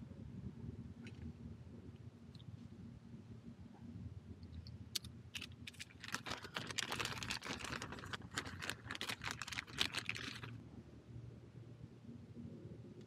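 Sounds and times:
plastic packet crinkling: 5.4s - 10.6s.

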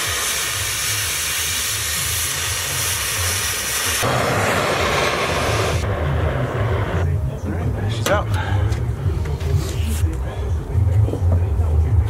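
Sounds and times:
cutting torch hissing: 0.0s - 7.4s.

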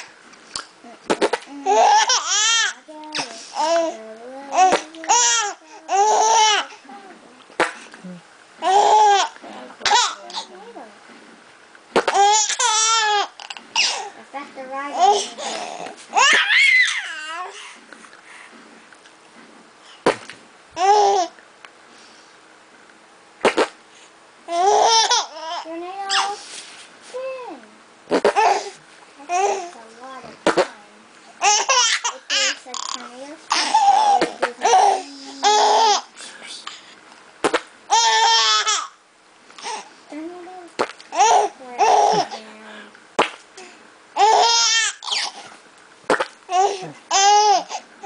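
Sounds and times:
fart noise: 1.1s - 1.5s, 11.9s - 12.2s, 20.0s - 20.3s, 23.4s - 23.8s, 28.1s - 28.5s, 30.4s - 30.8s, 37.4s - 37.7s, 46.1s - 46.4s
baby babbling: 1.5s - 7.1s, 8.6s - 10.5s, 14.9s - 17.6s, 24.5s - 26.4s, 28.3s - 30.7s, 31.4s - 36.1s, 37.9s - 38.9s, 41.1s - 42.4s, 43.6s - 45.4s, 46.5s - 47.8s
baby laughing and squealing: 1.7s - 2.8s, 12.0s - 14.1s, 15.0s - 17.5s, 24.5s - 26.4s, 31.4s - 32.6s, 33.5s - 36.1s, 37.9s - 39.0s, 44.2s - 45.4s, 46.5s - 47.8s.

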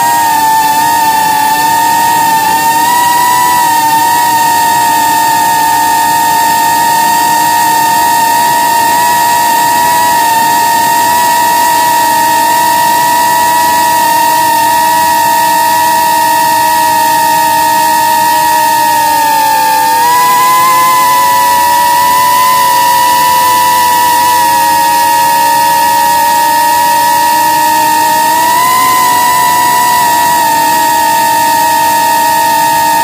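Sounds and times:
drone motors whining: 0.0s - 33.0s.

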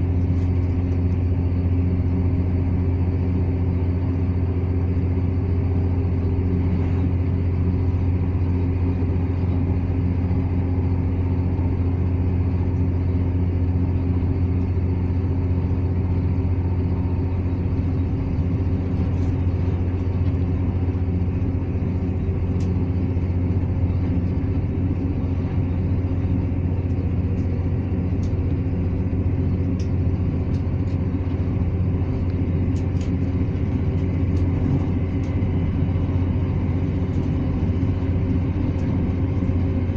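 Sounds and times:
train diesel engine drone: 0.0s - 39.9s
wheel and rail noise: 17.5s - 39.9s.

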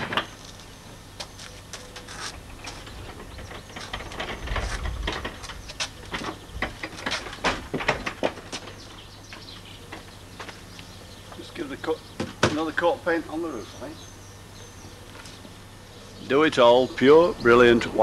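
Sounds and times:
wood and metal knocks and rattles: 2.4s - 10.7s.

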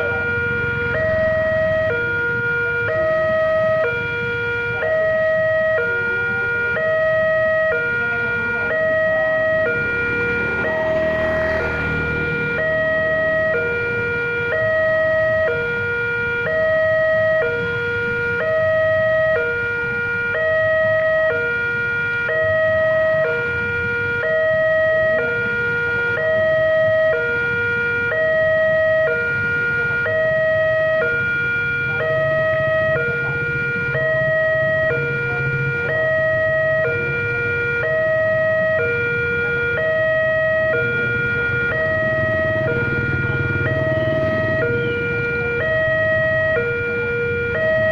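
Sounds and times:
motorcycle engines idling: 0.0s - 2.3s, 39.5s - 46.6s
two-tone crossing alarm: 0.0s - 47.9s.

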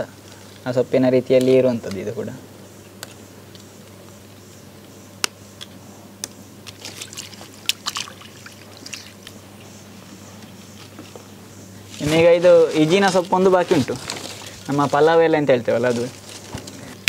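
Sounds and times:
hands splashing water in bowl: 6.7s - 9.2s
water dripping: 6.7s - 9.3s.

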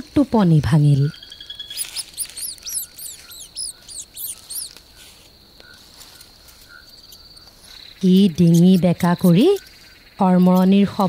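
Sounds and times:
crickets chirring: 0.0s - 11.0s
mouse squeaking: 1.0s - 5.1s, 5.7s - 11.0s.

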